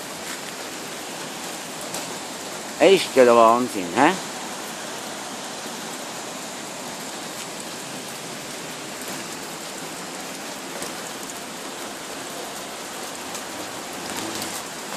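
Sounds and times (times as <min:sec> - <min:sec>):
heavy rain and hail falling: 0:00.0 - 0:14.9.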